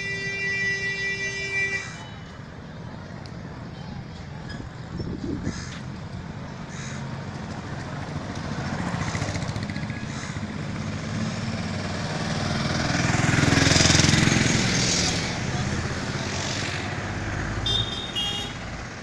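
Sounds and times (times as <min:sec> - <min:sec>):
motorcycle engines passing: 0:01.3 - 0:19.0
car passing close: 0:06.3 - 0:17.8.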